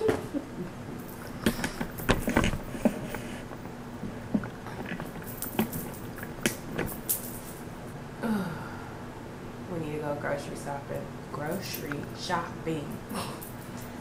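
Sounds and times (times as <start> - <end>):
microphone handling clicks and rustles: 1.2 - 7.6.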